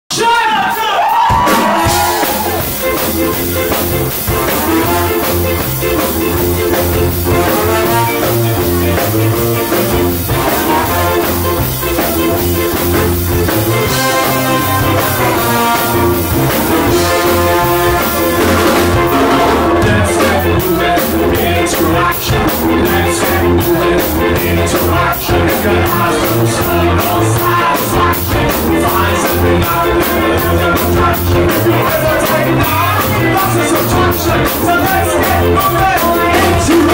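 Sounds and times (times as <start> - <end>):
live ska band playing: 0.1 - 36.9
person singing: 1.5 - 36.9.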